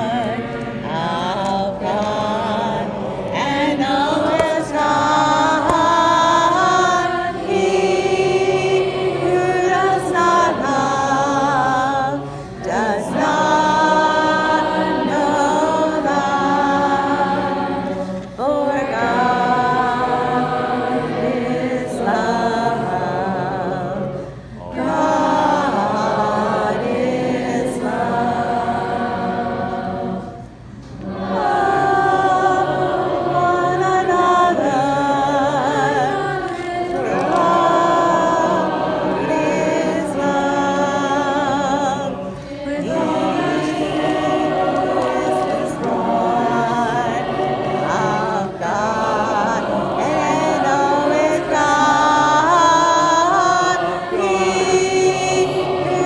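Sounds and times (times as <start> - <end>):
choir singing in unison: 0.0 - 56.0.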